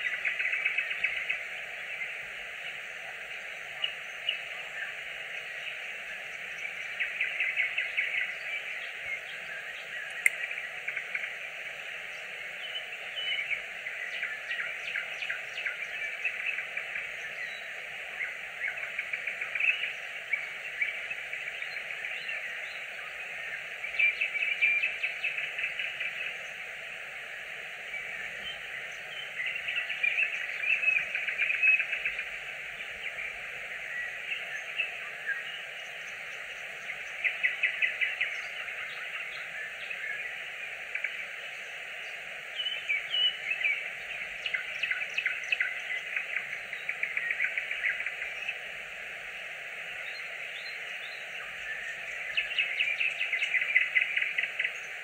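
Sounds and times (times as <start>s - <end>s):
background hiss: 0.0s - 55.0s
nightingale singing: 0.0s - 55.0s.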